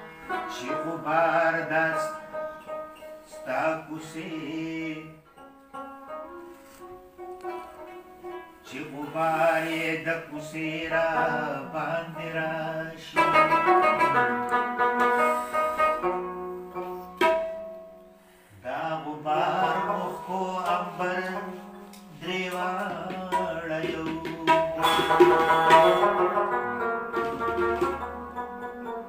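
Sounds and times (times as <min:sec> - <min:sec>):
plucked lute melody: 0:00.0 - 0:29.0
tabla drumming: 0:17.1 - 0:17.7, 0:22.5 - 0:28.8.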